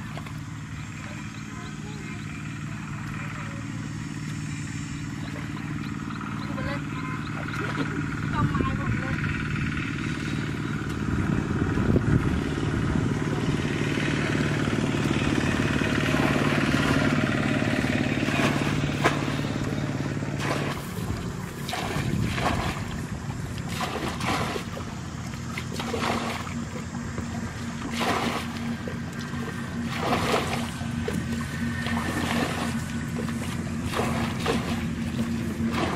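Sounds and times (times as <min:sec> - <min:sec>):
small engine humming: 0:00.0 - 0:35.9
muddy water splashing and pouring: 0:14.5 - 0:35.9.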